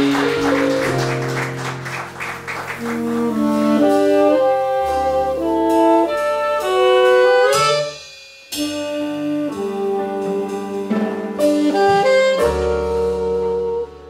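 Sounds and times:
double bass: 0.0 - 7.8, 8.6 - 14.0
saxophones playing melody: 0.0 - 8.0, 8.6 - 14.0
drums: 0.0 - 14.0
piano: 0.0 - 14.0.

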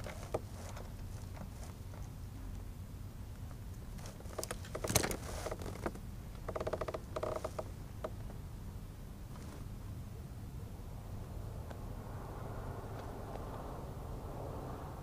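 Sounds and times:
low rumble of wind: 0.0 - 15.0
plastic kayak creaks: 4.0 - 8.2
kayak handling clicks and knocks: 4.0 - 8.4.

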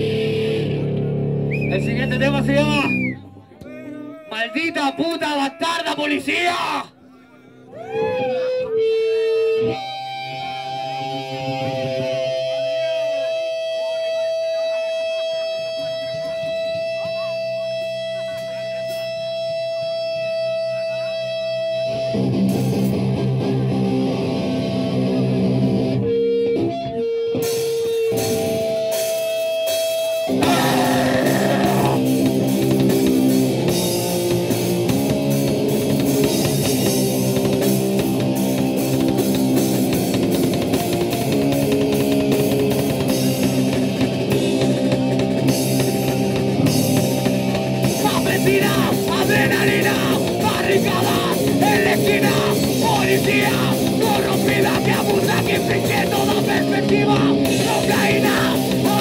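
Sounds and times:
distorted electric guitar riffs: 0.0 - 59.0
drums and cymbals: 27.4 - 59.0.

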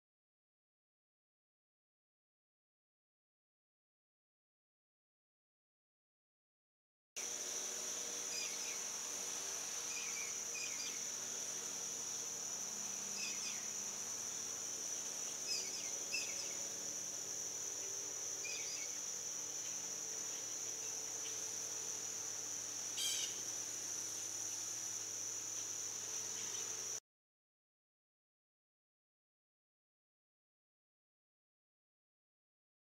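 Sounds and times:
high-pitched insect chorus: 7.2 - 27.0.

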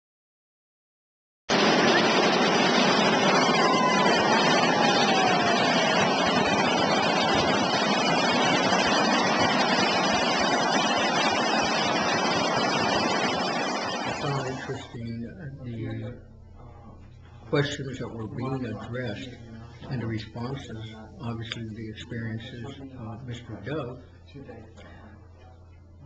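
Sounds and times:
wind rushing: 1.5 - 14.9
surf: 1.5 - 15.0
faint falling whistle: 1.6 - 8.2.

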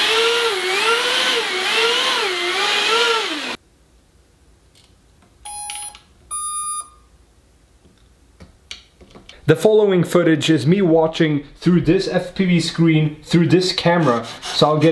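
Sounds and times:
short electronic beeps: 5.5 - 7.1.

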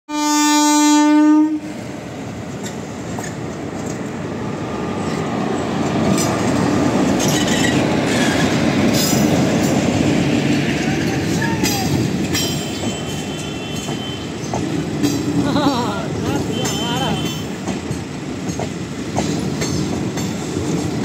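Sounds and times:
locomotive horn blast: 0.1 - 1.7, 12.8 - 14.4, 16.4 - 17.5
train rumbling past: 0.1 - 21.0
wheels clacking over rail joints: 2.2 - 4.4, 5.0 - 21.0.

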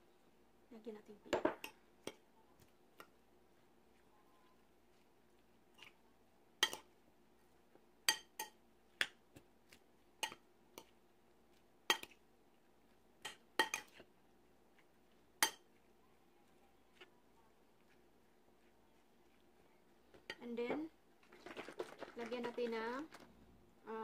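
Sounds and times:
metal spoon clinking glass bowl: 8.1 - 8.6, 13.2 - 14.0, 15.4 - 15.7.

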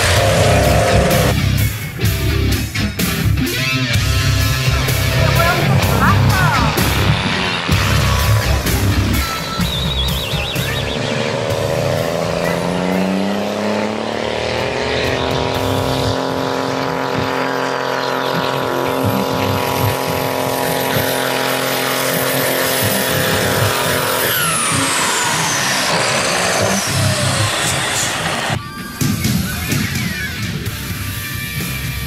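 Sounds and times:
diesel lorry engine at full throttle: 0.0 - 32.0
high whistle: 7.4 - 11.6.

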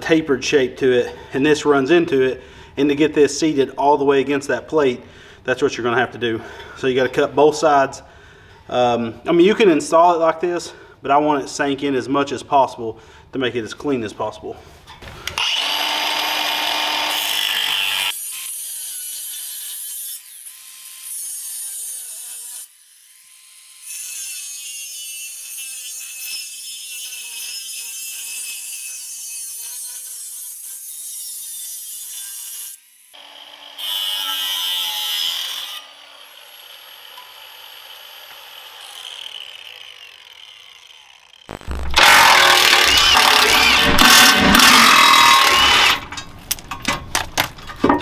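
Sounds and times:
angle grinder cutting steel: 15.4 - 46.2.

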